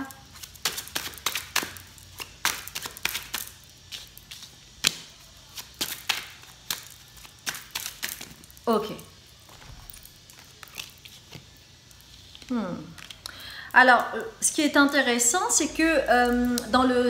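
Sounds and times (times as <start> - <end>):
cards being shuffled: 0.2 - 8.6.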